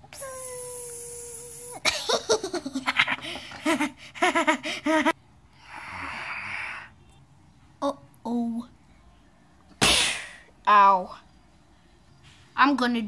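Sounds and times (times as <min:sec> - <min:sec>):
child laughing: 0:01.7 - 0:05.2.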